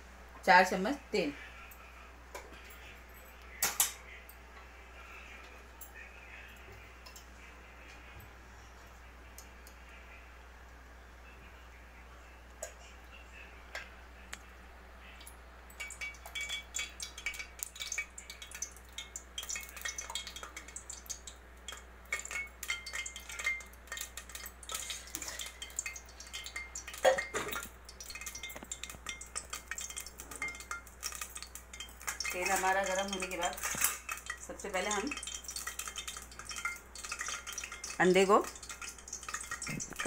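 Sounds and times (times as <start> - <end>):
oil crackling and popping: 15.8 - 40.0.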